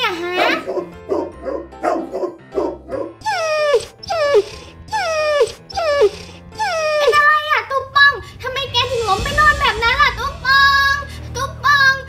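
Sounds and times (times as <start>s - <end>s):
dog crying: 0.1s - 7.6s
dog yipping: 0.2s - 7.3s.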